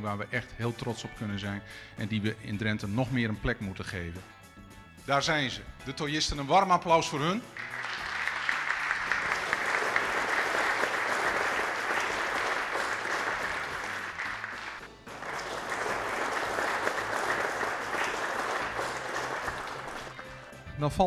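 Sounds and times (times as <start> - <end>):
audience applauding: 7.5 - 20.4.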